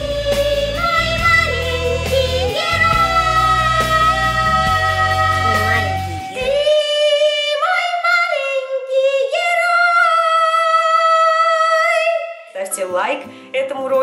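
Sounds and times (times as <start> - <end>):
song with backing music: 0.0 - 9.8
woman singing alone: 0.0 - 12.5.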